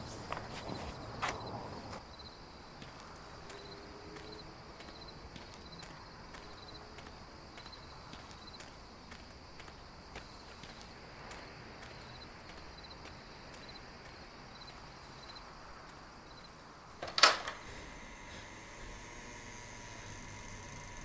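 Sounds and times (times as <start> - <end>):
crickets chirping: 0.0 - 21.0
steady hum: 17.4 - 21.0.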